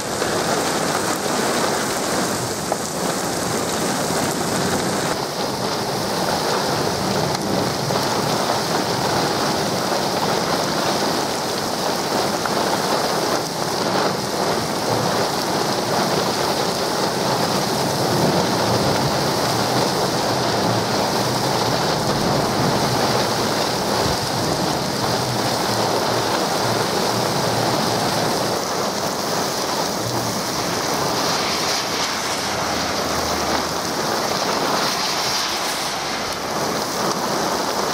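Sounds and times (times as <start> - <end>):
heavy rain pouring: 0.0 - 37.9
low rumble of storm gusts: 0.0 - 37.9
car driving past on wet road: 29.4 - 37.9.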